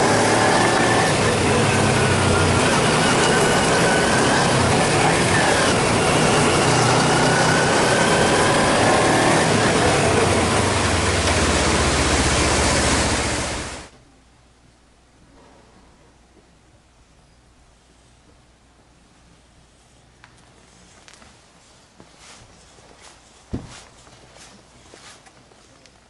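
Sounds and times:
motorcycle engine running: 0:00.0 - 0:13.9.

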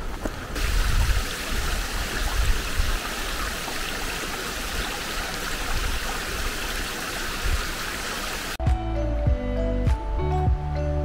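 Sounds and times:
stream rushing: 0:00.0 - 0:08.6.

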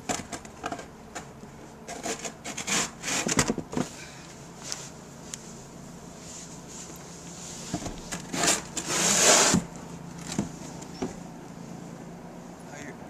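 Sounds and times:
snow shovel scraping: 0:08.3 - 0:09.6.

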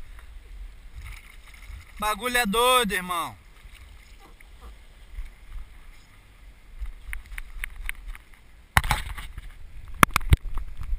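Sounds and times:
water lapping against kayak hull: 0:00.0 - 0:10.9
wind rumble on microphone: 0:03.8 - 0:10.9.

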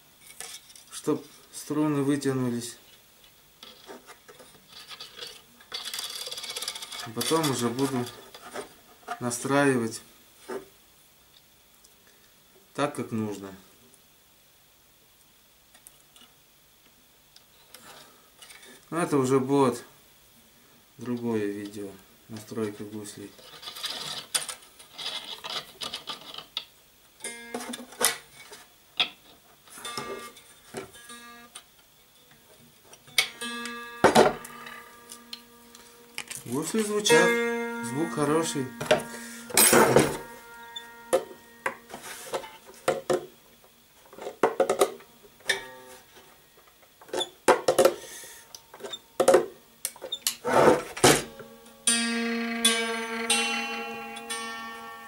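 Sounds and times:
plucked string notes: 0:33.2 - 0:42.6, 0:51.1 - 0:55.0
handling noise: 0:33.3 - 0:43.3.

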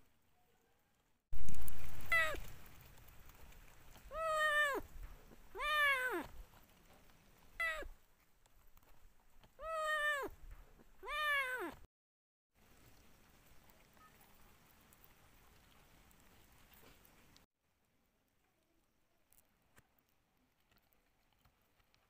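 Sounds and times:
kitten meowing: 0:02.1 - 0:02.4, 0:04.1 - 0:04.8, 0:05.5 - 0:06.3, 0:07.6 - 0:07.9, 0:09.6 - 0:10.3, 0:11.0 - 0:11.8.

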